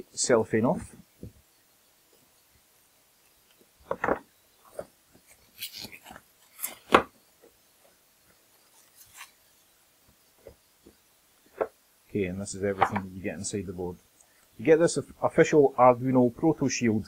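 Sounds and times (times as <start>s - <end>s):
cellophane crinkling: 4.7s - 6.9s.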